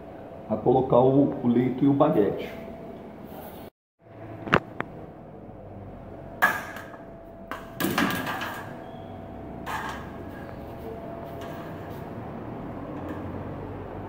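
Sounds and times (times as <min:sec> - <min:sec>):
knocks and rattles of strip: 0:07.5 - 0:08.8.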